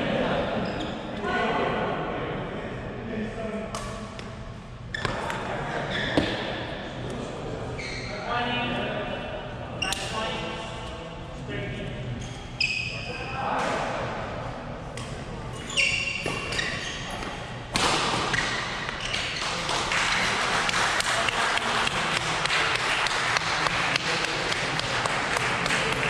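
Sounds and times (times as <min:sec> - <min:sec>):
court shoes squeaking: 0:00.6 - 0:01.2, 0:03.7 - 0:06.8, 0:07.8 - 0:08.2, 0:09.8 - 0:10.4, 0:12.1 - 0:13.8, 0:14.9 - 0:20.3
crowd applauding: 0:19.2 - 0:26.0.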